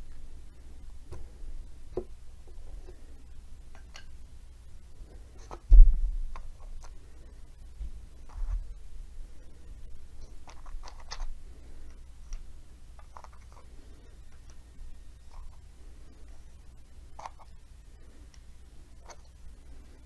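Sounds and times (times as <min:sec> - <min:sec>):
low thump: 0:05.7 - 0:06.2.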